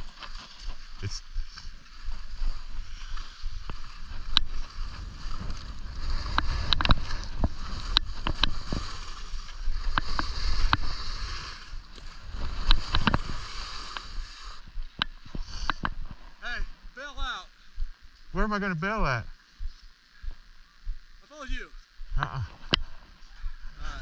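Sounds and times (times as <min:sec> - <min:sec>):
skis scraping on snow: 0:00.0 - 0:16.3
wind on microphone: 0:01.9 - 0:16.2.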